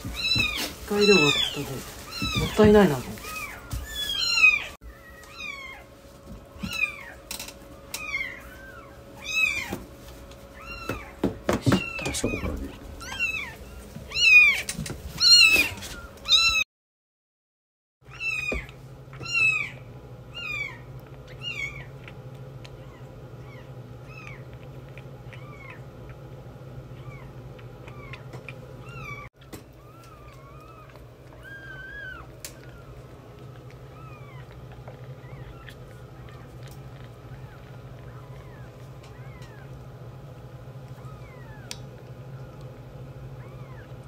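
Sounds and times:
kittens mewing: 0.0 - 5.9, 7.9 - 9.8, 10.6 - 16.6, 18.1 - 22.0, 26.9 - 40.0
steady low hum: 18.1 - 44.0.

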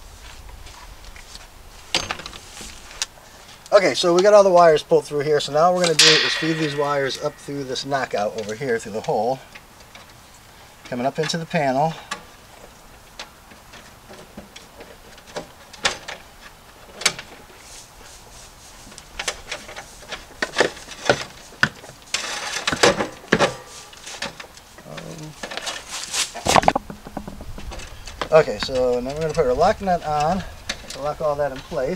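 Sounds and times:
rustling scrape: 0.0 - 3.6, 17.5 - 22.8, 23.6 - 24.4, 25.0 - 29.1
wires clicking and scraping: 23.7 - 31.9.

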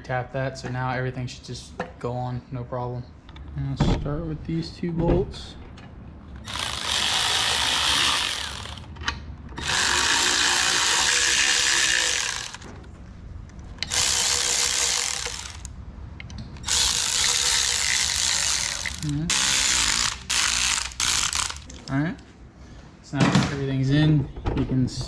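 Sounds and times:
ratchet tightening bolts: 6.4 - 12.7, 13.8 - 15.7, 16.6 - 21.9.

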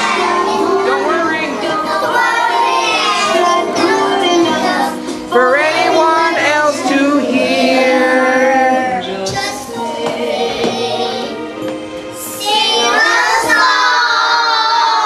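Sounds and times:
music playing: 0.0 - 15.0
young children singing: 0.0 - 15.0.

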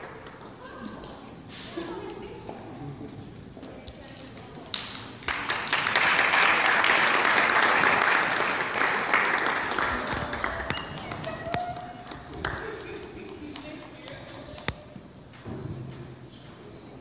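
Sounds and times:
audience applause: 4.8 - 13.6.

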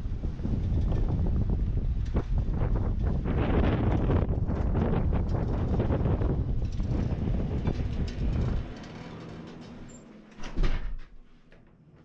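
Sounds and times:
wind buffeting microphone: 0.0 - 8.9
glass door opening: 7.0 - 11.7.

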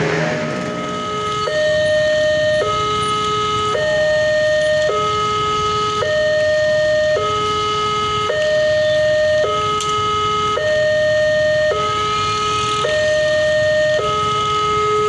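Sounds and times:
level crossing two-tone alarm: 0.7 - 15.0.

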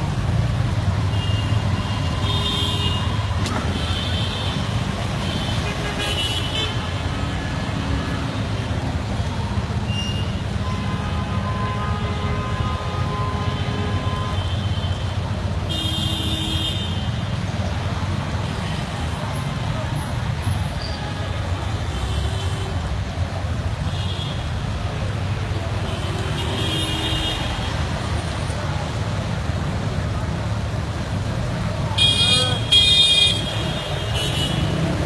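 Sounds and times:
steady traffic rumble: 0.0 - 35.0.

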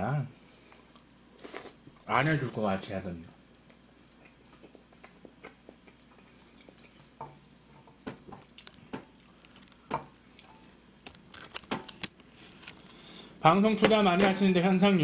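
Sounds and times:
soft chewing: 0.4 - 11.6.

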